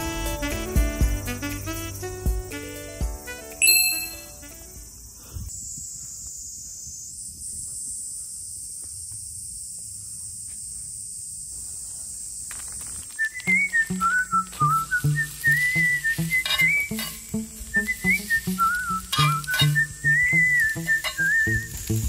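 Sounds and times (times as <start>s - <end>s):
whistled tune: 0.0s - 4.6s, 13.2s - 22.0s
low rhythmic accompaniment: 0.0s - 4.7s
insects droning: 0.0s - 22.0s.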